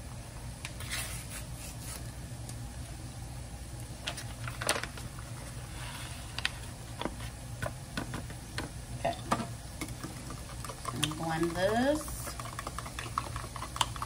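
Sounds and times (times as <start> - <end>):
paper packet crinkling: 4.1 - 5.2.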